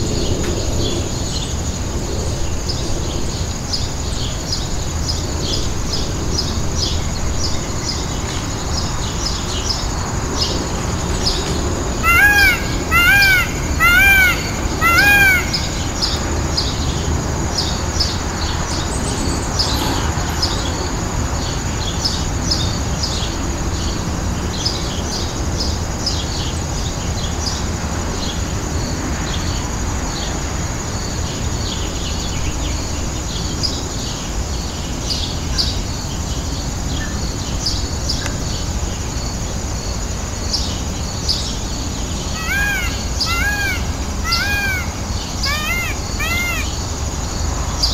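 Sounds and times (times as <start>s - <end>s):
outdoor background noise: 0.0s - 47.9s
small birds chirping: 4.2s - 20.8s, 40.5s - 47.9s
peacock calls: 11.9s - 16.4s, 42.2s - 47.1s.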